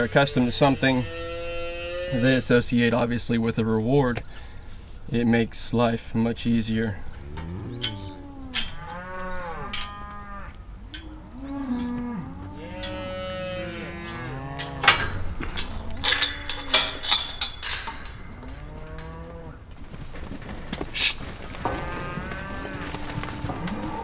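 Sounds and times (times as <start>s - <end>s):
cattle mooing: 0.0s - 2.4s, 7.0s - 19.6s, 21.6s - 24.0s
sharp knocks or clanks: 14.1s - 19.1s.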